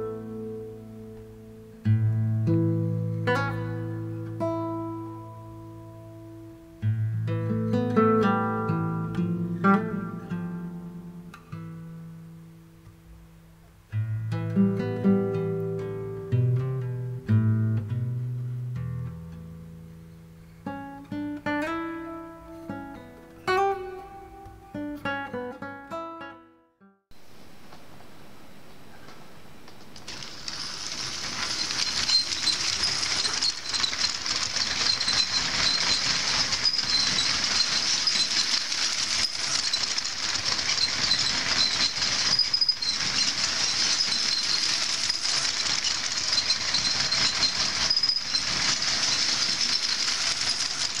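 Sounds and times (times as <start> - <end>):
wheels rattling on plastic track: 30.0 - 51.0
toy train motor whining: 30.1 - 51.0.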